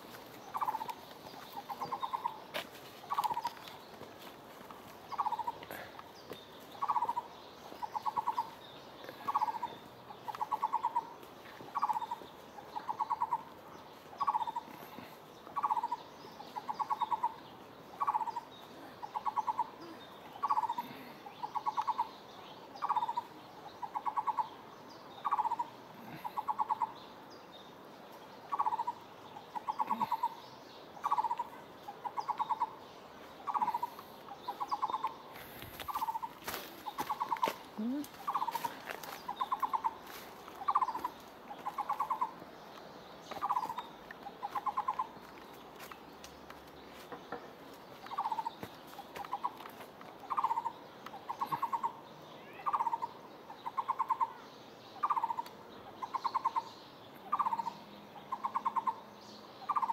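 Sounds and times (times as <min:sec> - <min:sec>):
animal calling in trees: 0:00.0 - 0:03.8, 0:05.0 - 0:06.0, 0:06.8 - 0:22.2, 0:22.8 - 0:24.6, 0:25.2 - 0:27.1, 0:28.5 - 0:42.4, 0:43.4 - 0:45.2, 0:48.1 - 0:49.6, 0:50.2 - 0:59.9.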